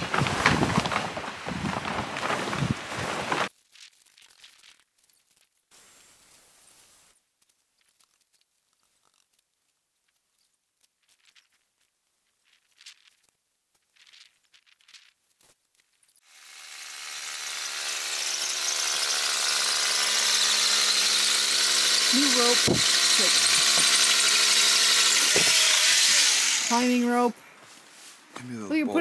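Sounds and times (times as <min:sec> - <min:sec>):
faint rustles: 0:00.0 - 0:16.2, 0:27.4 - 0:28.5
power tool motor whining: 0:16.3 - 0:27.1.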